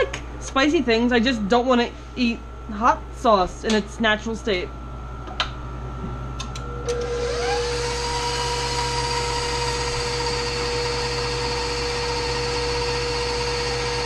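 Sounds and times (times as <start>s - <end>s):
stand mixer motor whining: 6.8s - 14.0s.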